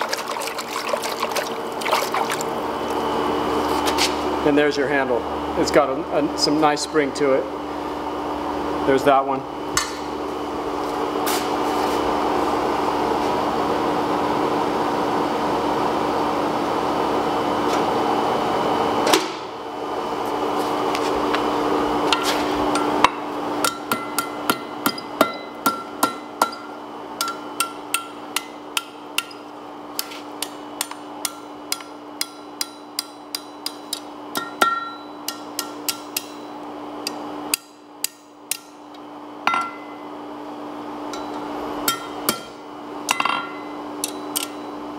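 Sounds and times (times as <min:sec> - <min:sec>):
hammer striking metal on anvil: 0:22.2 - 0:29.4, 0:30.0 - 0:38.8, 0:39.5 - 0:40.0, 0:41.1 - 0:44.7.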